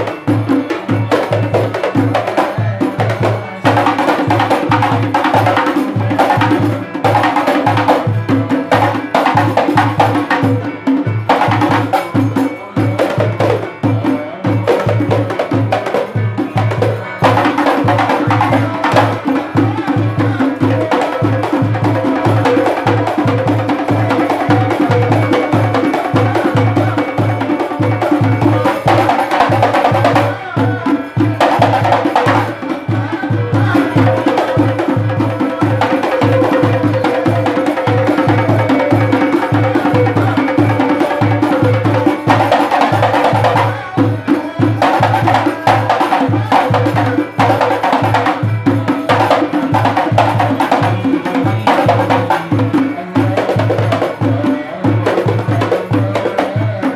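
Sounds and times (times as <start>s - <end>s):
frame drums beating: 0.0s - 56.9s
singer chanting through microphone: 0.0s - 56.9s.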